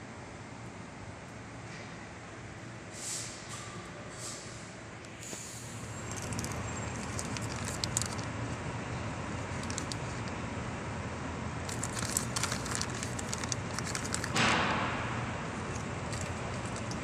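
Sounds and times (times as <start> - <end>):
steady low hum: 3.8 - 17.0
plastic bag crinkling: 6.0 - 8.3, 9.4 - 10.4, 11.6 - 14.6, 15.6 - 17.0.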